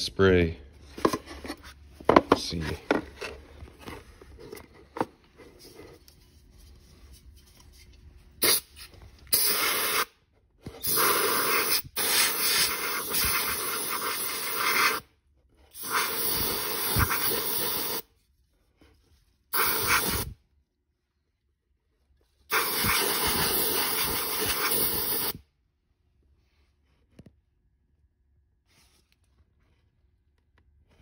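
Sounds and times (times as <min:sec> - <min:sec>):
aerosol can spraying: 0:08.4 - 0:08.7, 0:09.3 - 0:10.1, 0:10.8 - 0:15.0, 0:15.8 - 0:18.1, 0:19.5 - 0:20.4, 0:22.5 - 0:25.4.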